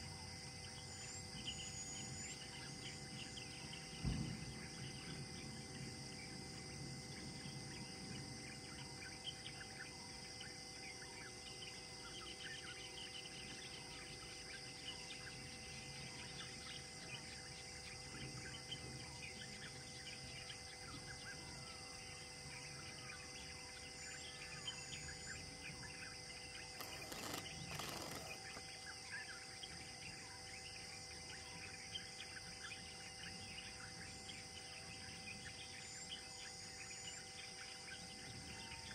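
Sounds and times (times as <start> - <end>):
high insect drone: 0.0 - 38.9
birds chirping: 22.7 - 30.2
rustling noise: 26.8 - 28.6.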